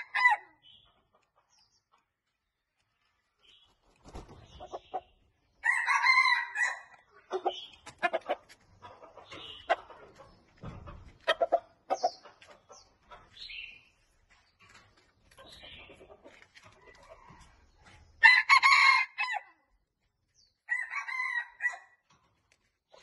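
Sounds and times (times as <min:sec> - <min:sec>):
wings flapping: 0:03.8 - 0:04.7
rooster crowing: 0:05.6 - 0:07.0, 0:20.7 - 0:21.9.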